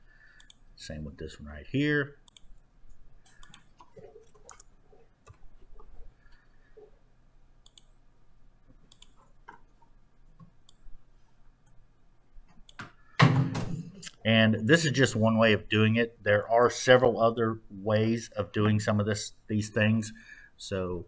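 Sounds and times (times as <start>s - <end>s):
computer mouse clicks: 0.4s - 0.6s, 2.2s - 2.6s, 3.2s - 6.4s, 7.6s - 8.0s, 8.9s - 9.8s, 10.4s - 10.9s.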